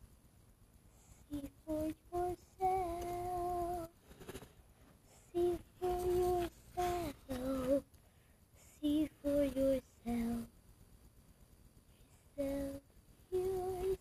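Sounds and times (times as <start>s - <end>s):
person humming a slow tune: 1.2s - 4.0s, 5.3s - 7.9s, 12.3s - 14.0s.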